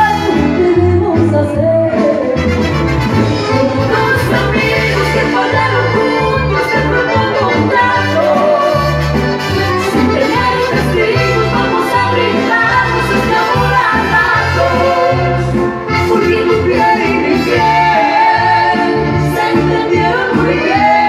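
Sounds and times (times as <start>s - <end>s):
bass line: 0.0s - 21.0s
drums: 0.0s - 21.0s
live band playing: 0.0s - 21.0s.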